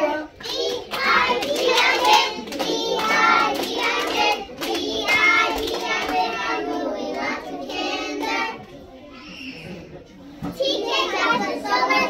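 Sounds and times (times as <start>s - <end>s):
children singing: 0.0s - 9.8s, 10.4s - 12.0s
hand claps: 0.4s - 6.5s.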